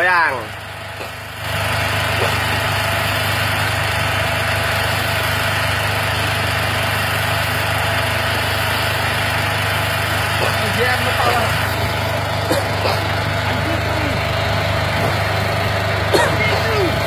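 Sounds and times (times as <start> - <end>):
engine running steadily: 0.0 - 17.0.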